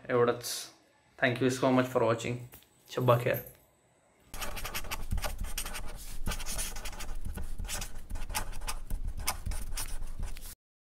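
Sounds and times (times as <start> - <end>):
pen scratching while writing: 4.3 - 10.6.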